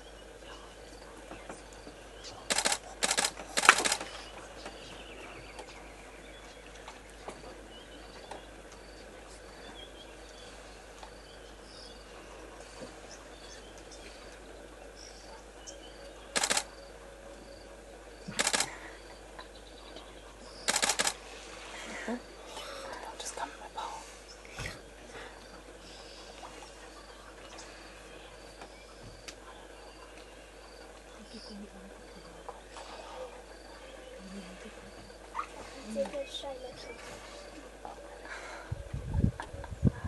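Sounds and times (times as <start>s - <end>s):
faint outdoor background: 0.0s - 40.0s
camera shutters firing: 2.5s - 4.1s, 16.4s - 16.7s, 18.4s - 18.7s, 20.7s - 21.2s.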